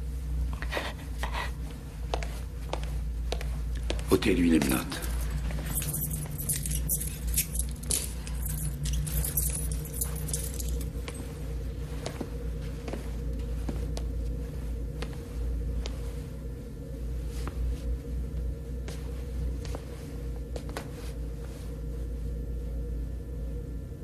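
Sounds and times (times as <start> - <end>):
steady low hum: 0.0 - 24.0
handcuffs clicking and jangling: 4.6 - 11.2.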